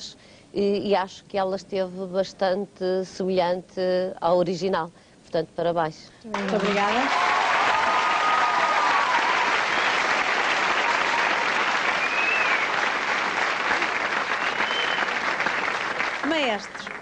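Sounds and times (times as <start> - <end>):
audience applauding: 6.3 - 17.0.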